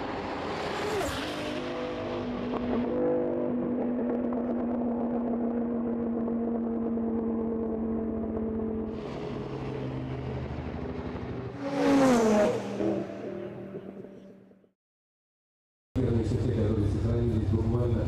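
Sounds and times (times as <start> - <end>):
sports car engines revving high: 0.0 - 14.2
loud rush of passing car: 8.9 - 14.0.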